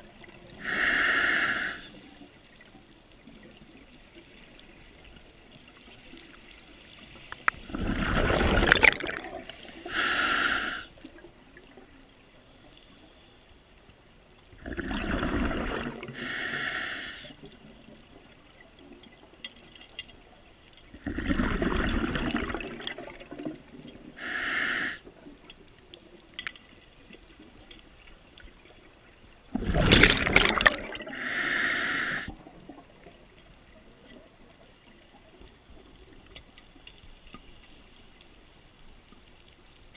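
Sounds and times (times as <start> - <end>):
regulator hiss: 0.6 - 2.4, 9.4 - 11.0, 16.1 - 17.4, 24.2 - 25.0, 31.1 - 32.3
rush of bubbles: 7.5 - 11.8, 14.6 - 16.6, 21.0 - 25.2, 29.5 - 33.2.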